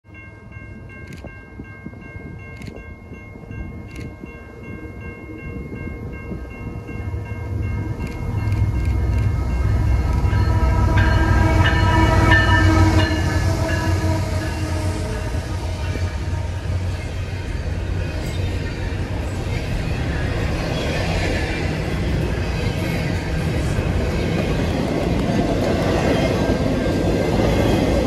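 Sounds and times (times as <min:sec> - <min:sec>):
diesel locomotive rumble: 0:05.8 - 0:28.0.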